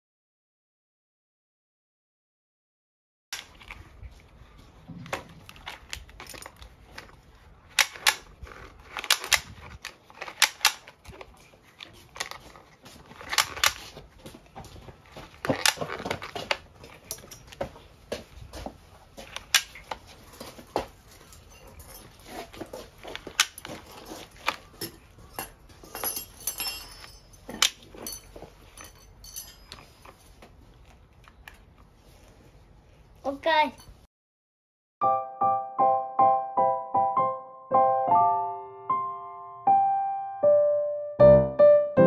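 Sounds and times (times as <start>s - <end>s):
nylon line scraping: 3.4s - 14.2s, 19.0s - 25.9s.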